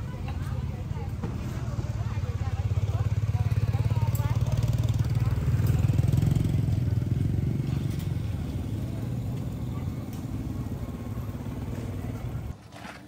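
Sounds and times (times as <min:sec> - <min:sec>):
small engine running: 0:01.4 - 0:13.0.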